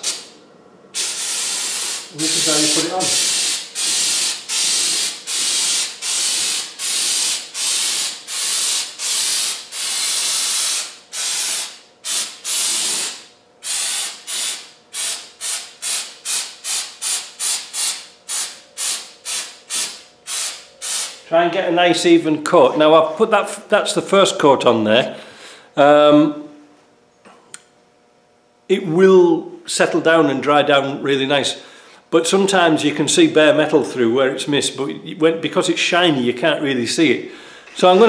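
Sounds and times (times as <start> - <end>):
aerosol can spraying hissing bursts: 0.0 - 0.3, 1.0 - 21.2.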